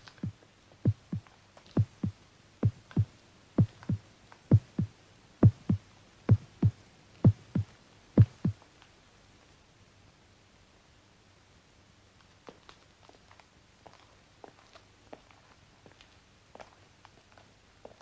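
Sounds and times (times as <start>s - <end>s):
heartbeat thumps: 0.0s - 8.6s.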